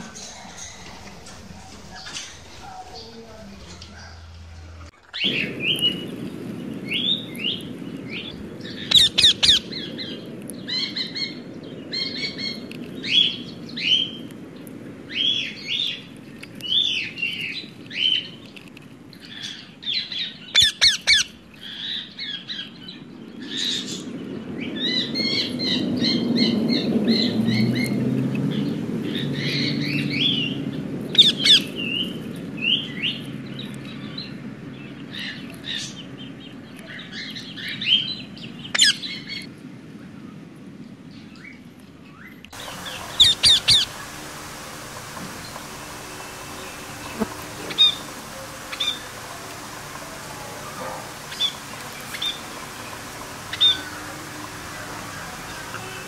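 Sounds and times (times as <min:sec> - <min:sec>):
low rumble: 0:00.0 - 0:16.0
bird chirping and squawking: 0:08.2 - 0:10.2, 0:42.6 - 0:50.4, 0:51.0 - 0:56.0.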